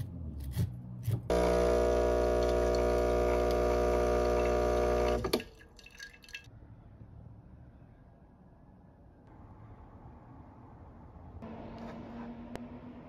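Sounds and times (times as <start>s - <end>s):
espresso machine pump buzzing: 1.3s - 5.4s.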